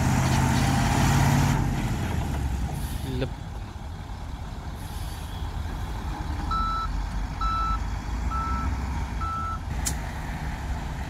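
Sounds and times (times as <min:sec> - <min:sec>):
diesel machinery rumble: 0:00.0 - 0:11.0
reversing alarm beeping: 0:06.5 - 0:09.6.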